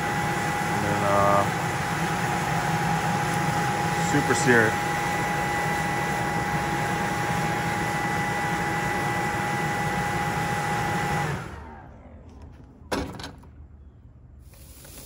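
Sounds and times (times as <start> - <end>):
handheld blower whining: 0.0 - 11.9.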